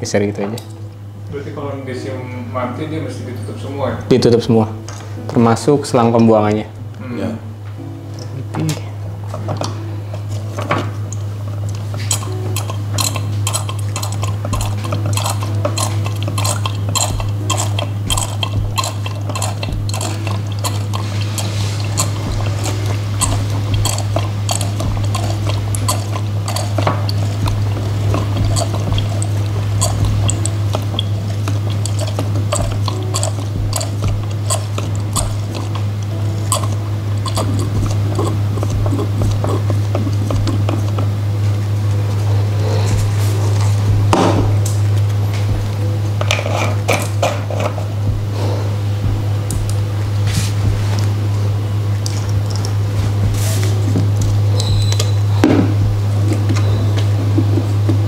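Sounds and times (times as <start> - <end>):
low hum: 4.6 - 58.0
ink gurgling and dripping: 11.1 - 41.1.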